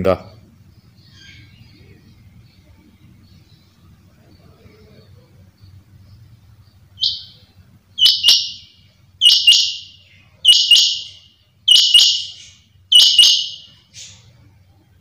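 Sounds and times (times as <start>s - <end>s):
quail calling: 7.0s - 7.4s, 8.0s - 14.2s.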